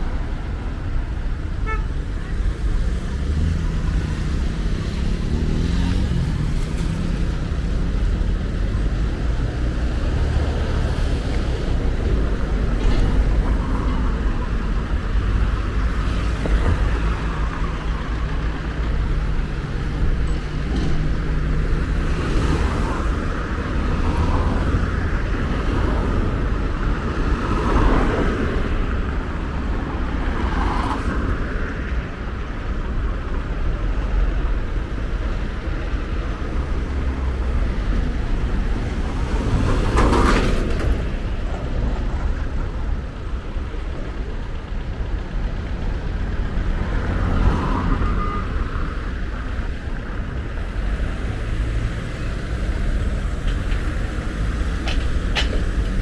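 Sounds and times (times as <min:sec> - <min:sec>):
vehicles passing close by: 0:00.0 - 0:56.0.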